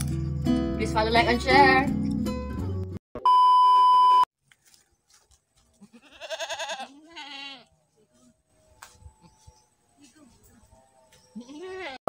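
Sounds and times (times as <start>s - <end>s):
test-card beep: 3.2s - 4.3s
goat bleating: 5.7s - 7.8s, 11.3s - 12.0s.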